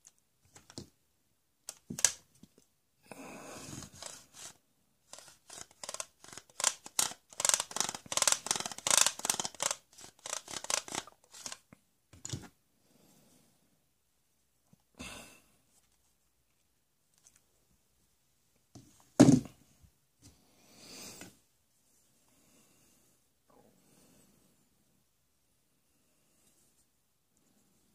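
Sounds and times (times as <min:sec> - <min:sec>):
toy saw scraping plank: 0:03.7 - 0:11.6.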